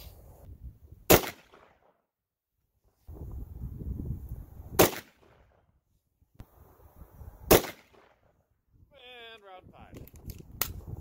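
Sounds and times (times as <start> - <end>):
rifle shot with echo: 1.1 - 1.8, 4.8 - 5.4, 7.5 - 8.2.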